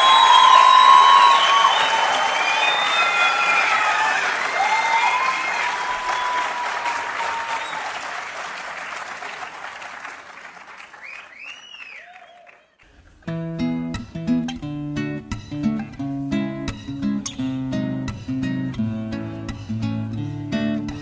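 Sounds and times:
audience applause and cheering: 0.0 - 12.9
acoustic guitar strumming chords: 13.2 - 21.0.

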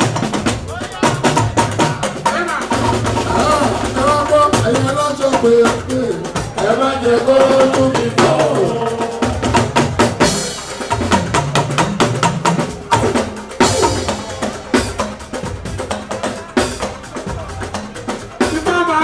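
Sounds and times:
drums and percussion playing: 0.0 - 19.0
person singing into microphone: 3.3 - 9.3.

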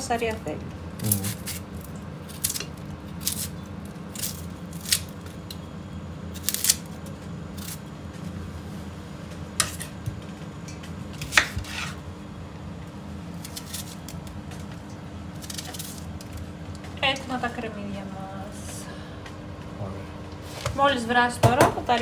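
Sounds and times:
knife cutting onions: 1.0 - 1.6, 9.6 - 10.0, 11.2 - 12.0, 13.4 - 14.2.

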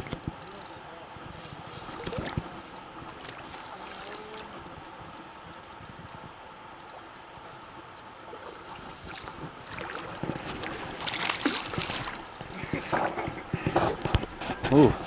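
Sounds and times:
river flowing: 0.0 - 15.0
wind: 0.0 - 15.0.

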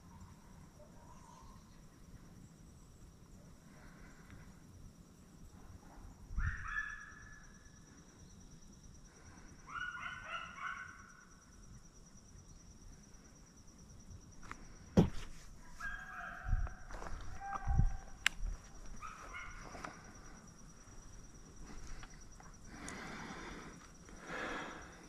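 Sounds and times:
faint baying of hounds: 5.8 - 7.5, 9.6 - 11.4, 15.6 - 18.2, 18.9 - 20.4.

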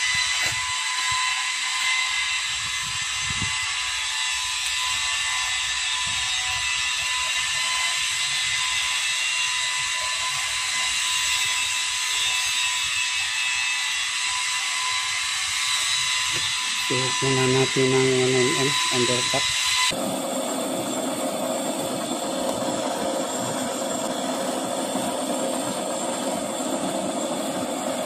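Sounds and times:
metal lathe running: 0.0 - 28.0.

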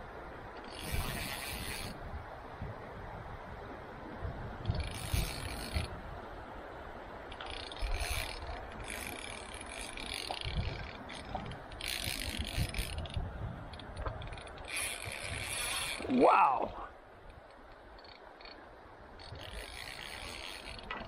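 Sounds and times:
fishing reel drag rattling: 0.6 - 2.0, 4.7 - 5.9, 7.3 - 16.6, 17.3 - 18.6, 19.2 - 21.0.

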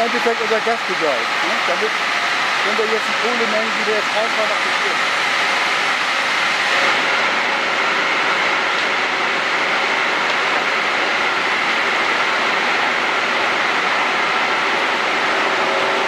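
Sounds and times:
power station machinery din: 0.0 - 16.0.

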